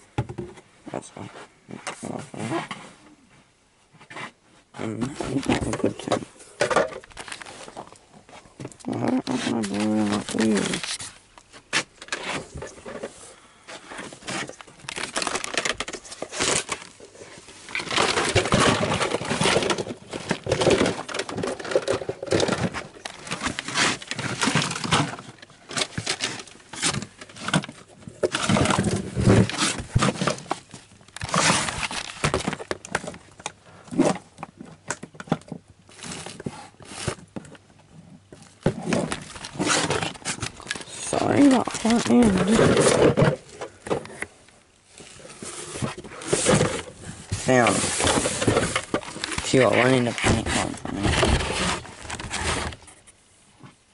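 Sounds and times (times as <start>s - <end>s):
plastic toys and bottles clattering: 4.9s - 8.0s, 8.6s - 37.6s, 38.2s - 53.0s.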